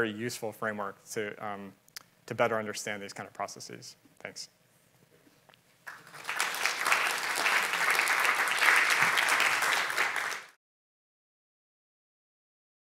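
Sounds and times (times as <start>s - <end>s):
audience applauding: 5.9s - 10.6s.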